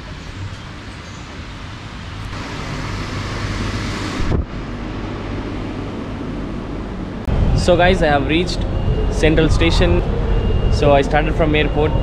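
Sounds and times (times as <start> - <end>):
low rumble: 2.3 - 12.0
wind rushing across microphone: 3.2 - 12.0.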